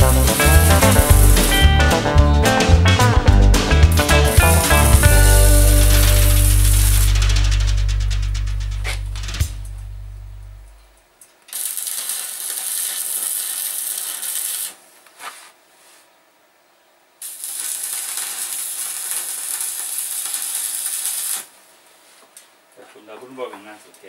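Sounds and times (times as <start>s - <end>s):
arc welding crackling hiss: 0.0s - 2.2s, 3.6s - 9.7s, 11.4s - 15.4s, 17.2s - 21.7s.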